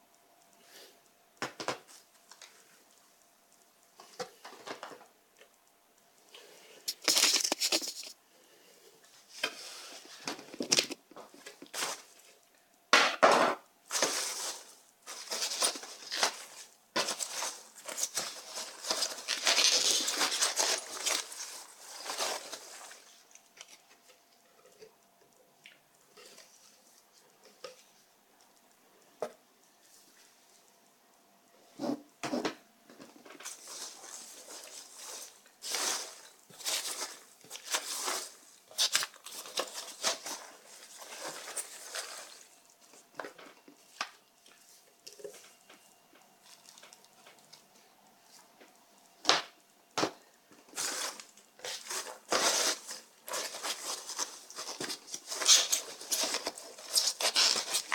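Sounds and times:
rustling packing peanuts: 6.8 - 8.2, 9.2 - 12.4, 13.8 - 24.0, 33.2 - 44.2, 50.6 - 57.9.

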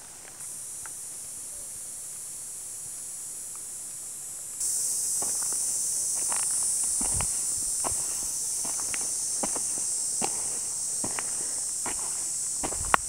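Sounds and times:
high-pitched insect drone: 0.0 - 13.0
footsteps on dirt trail: 4.6 - 13.0.

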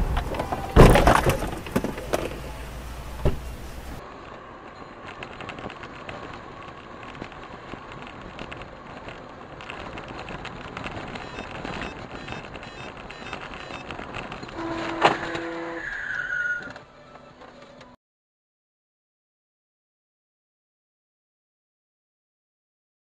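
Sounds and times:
car cabin hum on wet road: 0.0 - 4.0
car road and engine noise: 0.0 - 18.0.

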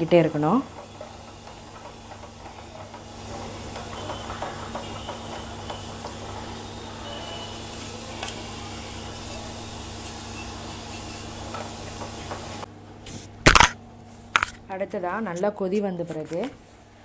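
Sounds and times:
spatula tapping: 0.0 - 6.6
spatula stirring batter in a pan: 0.1 - 12.5.

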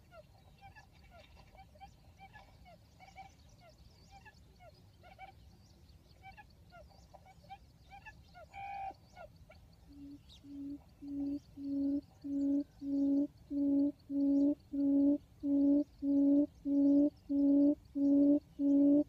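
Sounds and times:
quail chirps: 0.1 - 5.4, 6.2 - 19.0
low hooting notes: 10.0 - 19.0.

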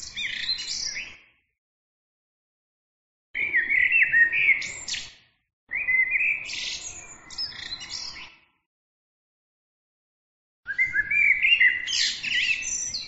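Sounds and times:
blackbird singing: 0.0 - 1.2, 3.4 - 8.4, 10.7 - 13.0.

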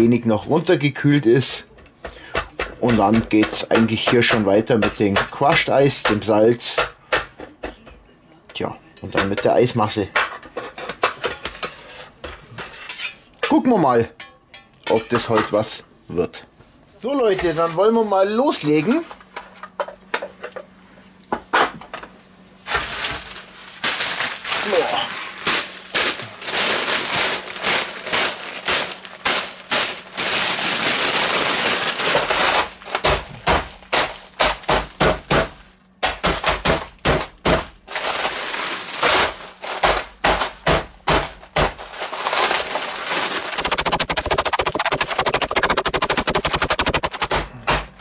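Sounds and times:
mallet pounding bag of ice: 2.4 - 7.3, 22.7 - 48.0
plastic bag of ice crinkling: 22.6 - 35.8, 36.4 - 47.2.

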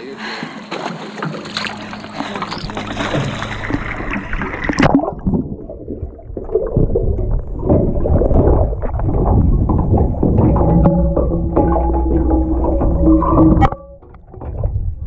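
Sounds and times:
water sloshing and splashing: 0.0 - 15.0
underwater gurgling and bubbling: 0.9 - 15.0
steady low hum: 1.3 - 6.3.

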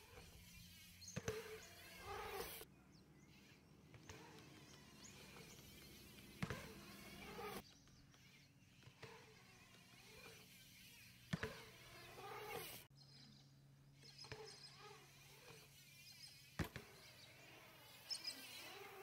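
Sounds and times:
bike wheels landing on concrete: 0.1 - 2.6, 3.9 - 7.7, 8.8 - 12.9, 14.2 - 19.0.

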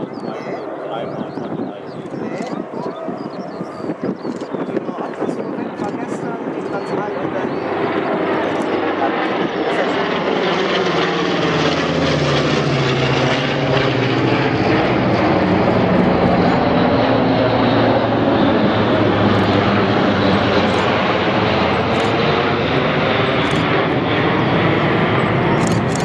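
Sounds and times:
propeller aircraft flying overhead: 0.0 - 26.0.

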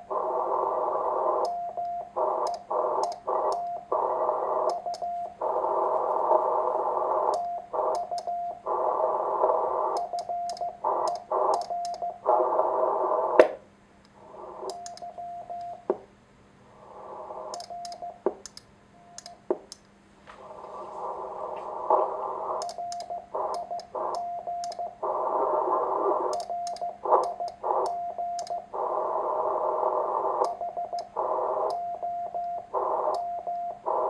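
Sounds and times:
receiver hiss: 0.0 - 34.0
morse code sidetone: 0.2 - 13.1, 14.4 - 15.9, 17.3 - 18.2, 20.8 - 34.0.

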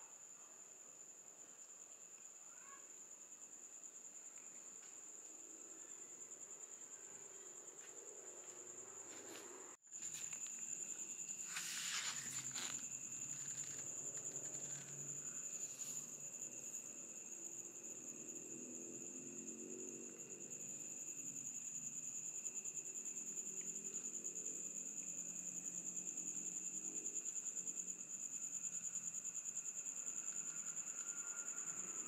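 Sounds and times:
crickets chirping: 0.0 - 32.0
short rustle: 11.2 - 14.9.

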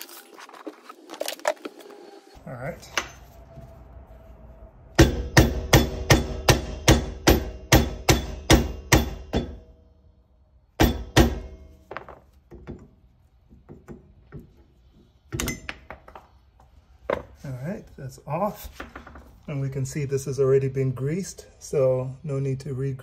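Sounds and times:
hammer striking metal: 5.0 - 9.9, 10.8 - 11.9, 15.4 - 15.8.

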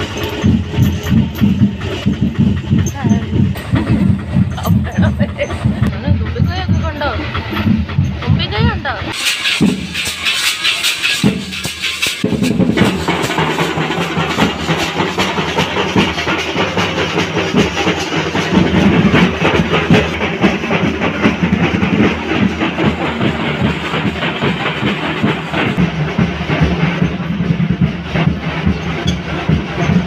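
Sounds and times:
drums in fast rhythm: 0.0 - 30.0.

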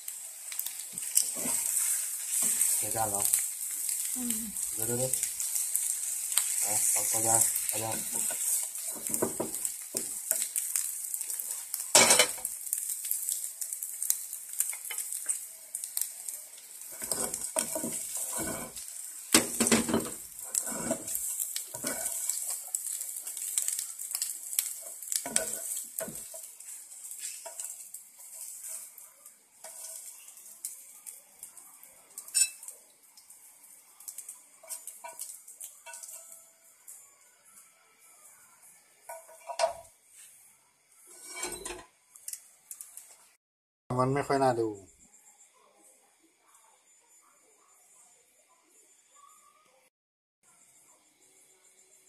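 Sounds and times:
omelette sizzling in oil: 0.0 - 43.4
spatula scraping and knocking pan: 0.9 - 3.4, 5.4 - 11.3, 16.8 - 29.0, 29.6 - 30.2, 41.1 - 41.9.

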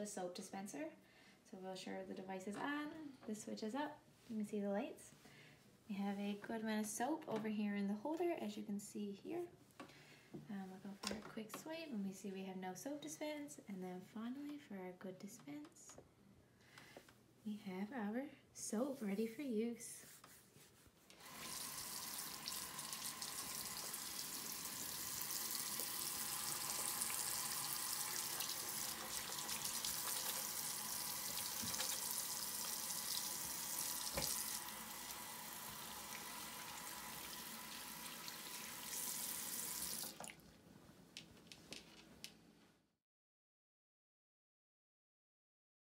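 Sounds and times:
faucet water running into sink: 21.2 - 40.4.

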